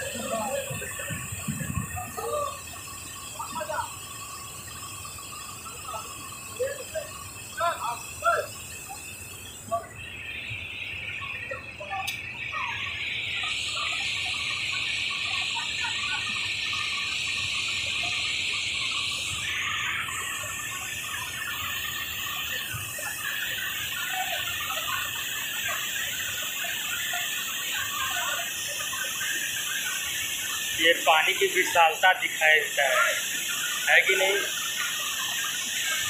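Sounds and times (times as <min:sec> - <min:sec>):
faint chirps: 0:00.0 - 0:36.0.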